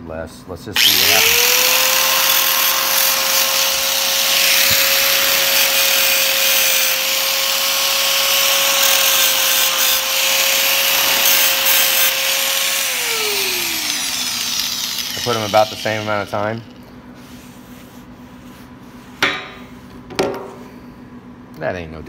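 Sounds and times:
disc grinding on steel: 0.8 - 16.6
angle grinder whining: 0.8 - 16.9.

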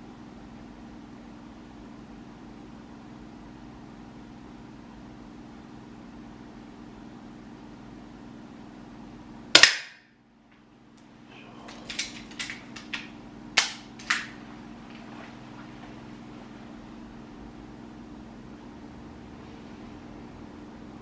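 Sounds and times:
airsoft pistol shot: 9.6 - 10.1.

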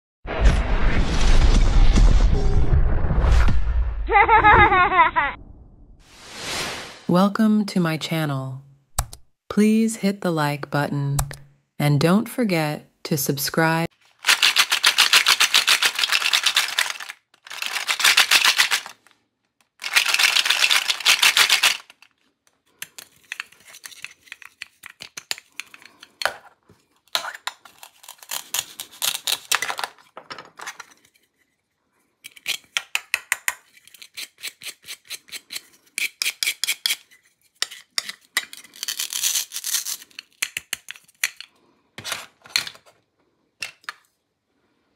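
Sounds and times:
hook-and-loop crackling rips: 14.0 - 19.1, 19.7 - 22.3, 27.6 - 29.6, 38.7 - 40.4.

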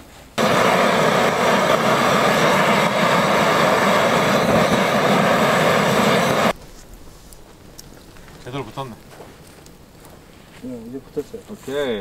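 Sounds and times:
gas torch flame hissing: 0.4 - 6.6.

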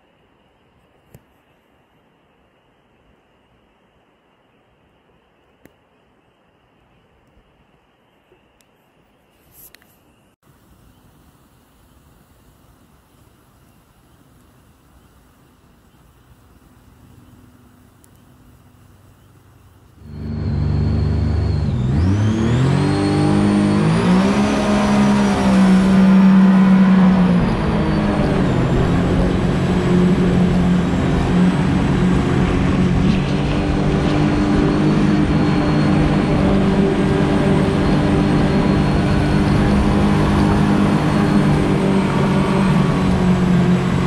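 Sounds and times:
water rushing: 19.5 - 44.0
outboard motor revving: 20.0 - 44.0.

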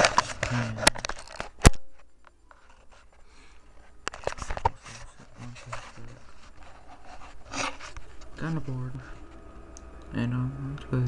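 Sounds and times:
rubbing on camera: 3.8 - 8.2.

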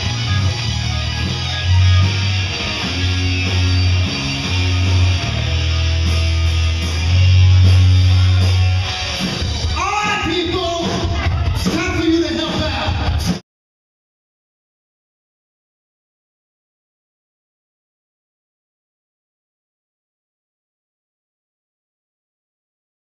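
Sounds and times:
hard rock band playing: 0.0 - 13.4.

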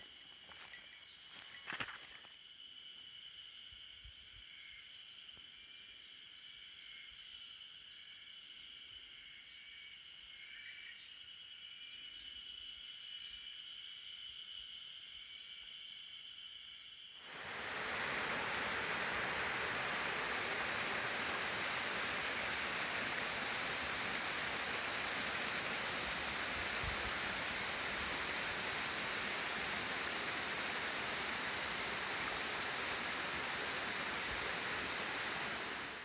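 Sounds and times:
insects buzzing faintly: 0.0 - 36.0
waterfall rushing: 17.2 - 36.0.

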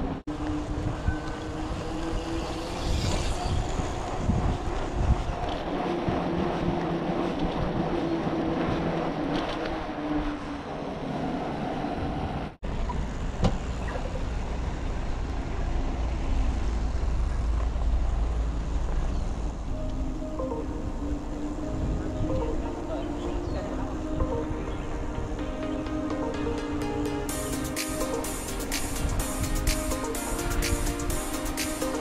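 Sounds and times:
wind rumbling on microphone: 0.0 - 25.4.

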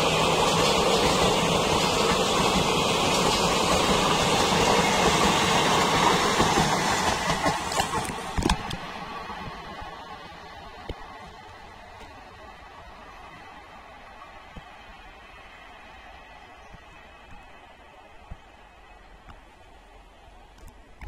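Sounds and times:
sharp train clacks: 0.0 - 12.2
train wheels rushing on rail: 0.0 - 20.5.

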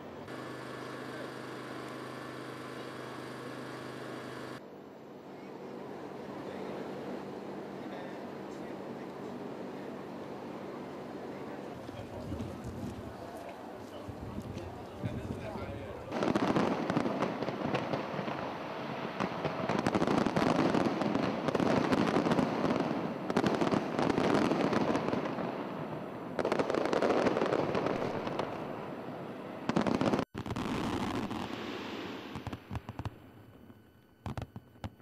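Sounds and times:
fireworks bangs and crackling: 11.7 - 35.0.

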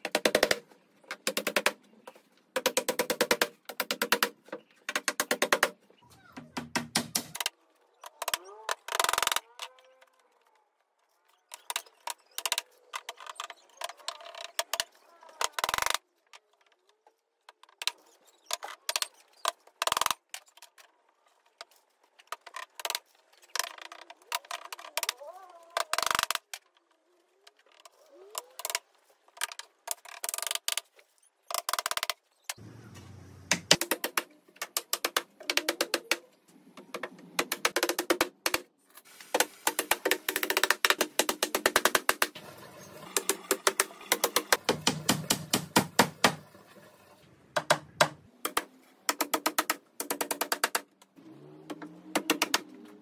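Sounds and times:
hammer driving nails into wood: 6.5 - 7.5, 43.2 - 46.4, 47.6 - 50.9, 51.7 - 52.8.

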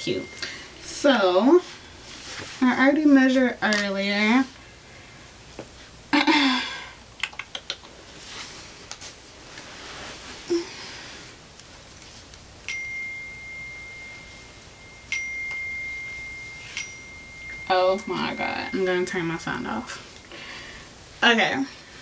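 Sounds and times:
phone message alert chime: 12.7 - 20.0.

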